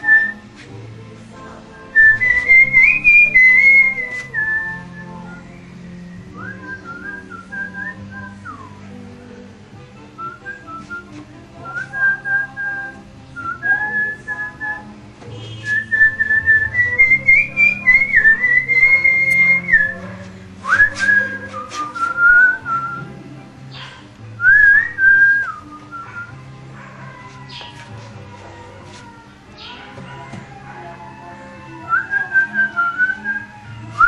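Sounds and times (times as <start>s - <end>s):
man whistling a tune: 0.0s - 0.4s, 2.0s - 5.5s, 6.2s - 8.8s, 10.2s - 20.0s, 20.6s - 23.1s, 24.4s - 26.4s, 31.9s - 34.0s
song playing on stereo: 0.0s - 34.0s.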